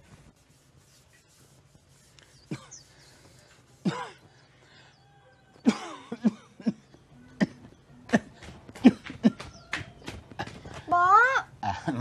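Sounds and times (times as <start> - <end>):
man coughing: 3.8 - 4.3, 5.6 - 6.8.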